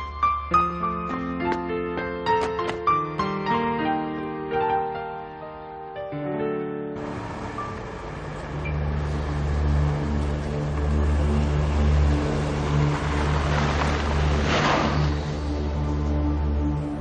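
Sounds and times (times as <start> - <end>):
car engine hum: 7.0 - 15.7
tyres on dirt: 7.0 - 16.0.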